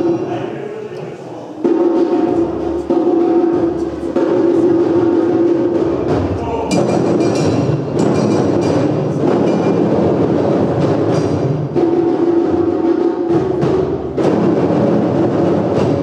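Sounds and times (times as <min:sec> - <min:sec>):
group of hand drums playing: 0:00.0 - 0:16.0.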